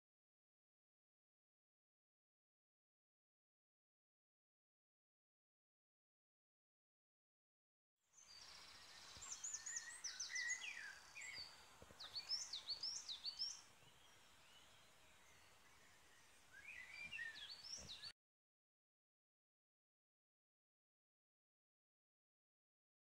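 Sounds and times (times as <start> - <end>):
songbirds singing: 8.2 - 18.1.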